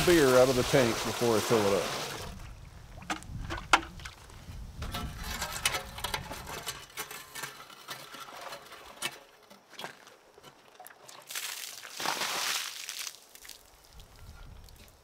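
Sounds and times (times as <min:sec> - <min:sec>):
water pouring onto gravel: 0:00.0 - 0:02.4, 0:11.1 - 0:14.8.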